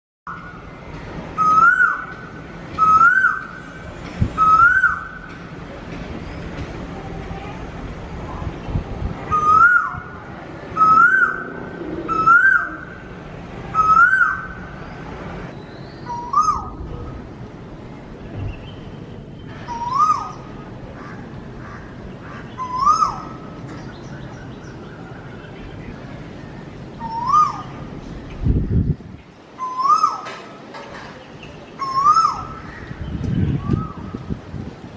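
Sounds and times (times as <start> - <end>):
peacock calling: 1.3 - 5.3, 9.3 - 15.0, 16.0 - 17.2, 19.5 - 25.6, 26.5 - 27.9, 29.6 - 30.5, 31.6 - 34.1.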